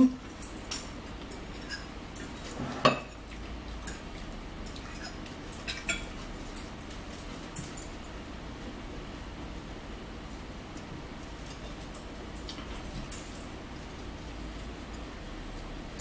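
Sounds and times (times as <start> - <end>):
fork clinking against bowl: 0.4 - 3.2, 3.8 - 6.2.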